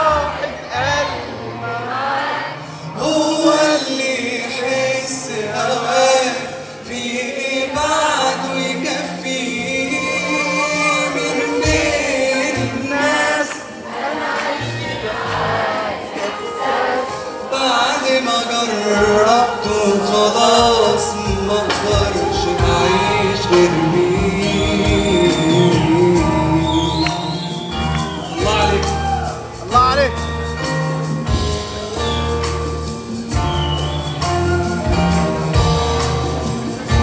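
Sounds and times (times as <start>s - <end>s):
live band playing pop: 0.0s - 37.0s
man singing: 2.9s - 13.9s, 17.4s - 29.5s.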